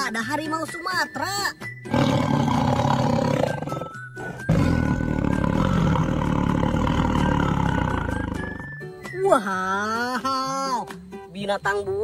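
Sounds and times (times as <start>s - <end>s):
tiger roaring: 1.9s - 8.6s.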